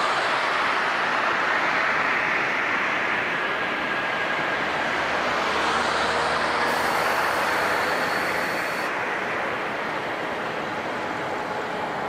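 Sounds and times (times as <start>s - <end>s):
jet engines rushing: 0.0s - 12.0s
thin high whine: 6.7s - 8.9s.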